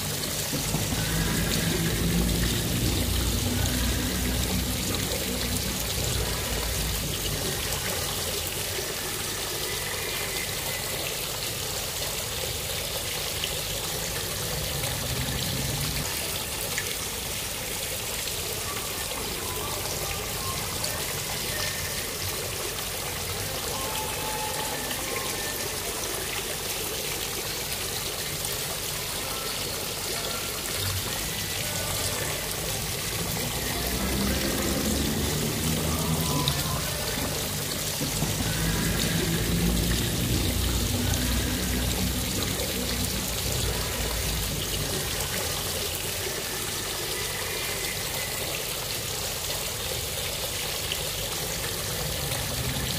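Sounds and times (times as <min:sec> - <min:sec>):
fountain water splashing: 0:00.0 - 0:52.9
faint song: 0:17.9 - 0:49.5.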